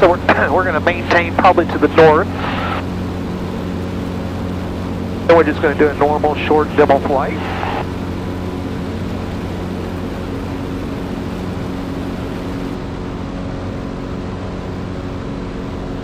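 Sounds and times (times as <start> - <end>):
light aircraft engine droning: 0.0 - 16.0.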